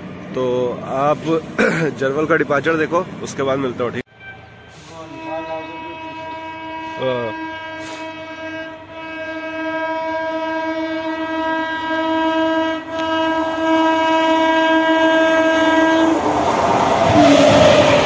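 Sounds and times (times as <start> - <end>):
train horn blast: 4.1 - 16.3, 17.1 - 18.0
locomotive rushing past: 13.4 - 18.0.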